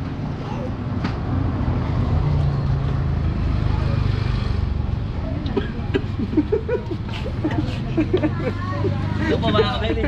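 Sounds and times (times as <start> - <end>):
vehicle engine rumbling past: 0.2 - 5.4.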